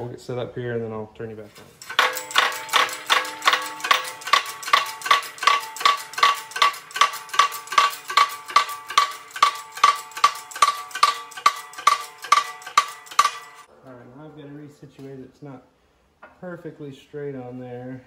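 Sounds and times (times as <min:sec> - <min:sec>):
hydraulic pump handle clacking: 0:01.8 - 0:13.7.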